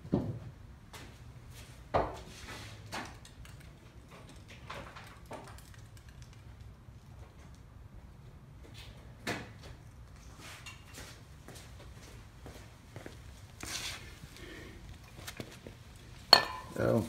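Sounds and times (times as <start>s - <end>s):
tools knocking and clunking: 16.4s - 16.8s.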